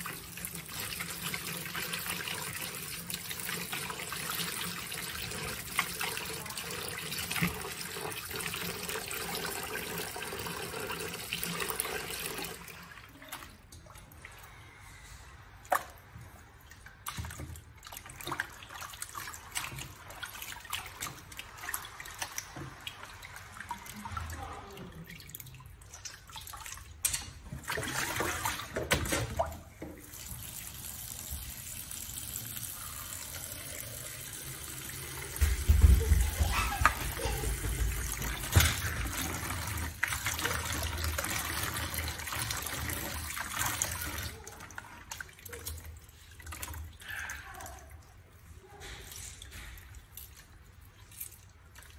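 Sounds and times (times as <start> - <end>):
tap running into basin: 33.3 - 46.9.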